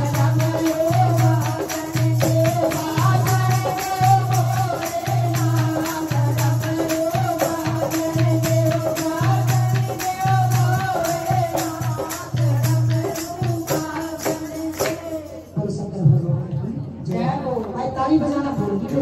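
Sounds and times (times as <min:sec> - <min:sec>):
hand clapping: 0:00.0 - 0:15.2
women singing devotional song: 0:00.0 - 0:15.9
light percussion: 0:00.0 - 0:16.2.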